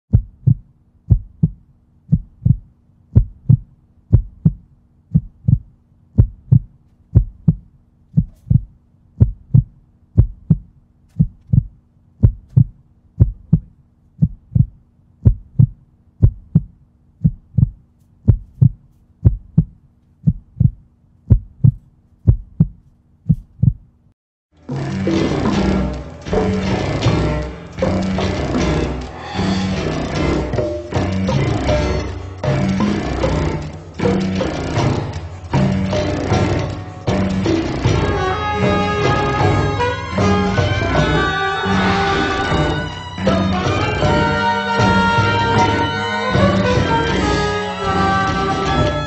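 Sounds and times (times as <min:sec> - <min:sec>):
heartbeat thumps: 0:00.1 - 0:24.0.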